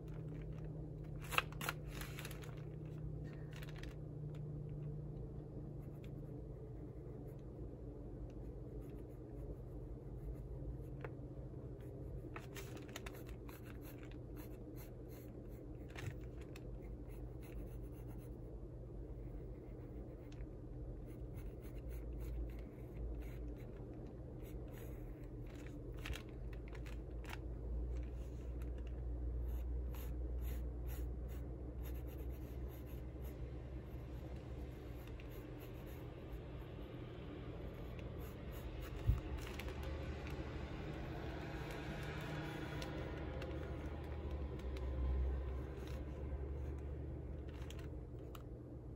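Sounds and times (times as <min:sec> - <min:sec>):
low hum: 0:00.0 - 0:48.9
pencil scratching on paper: 0:11.8 - 0:18.5, 0:20.9 - 0:25.4, 0:29.4 - 0:36.9, 0:37.6 - 0:39.5.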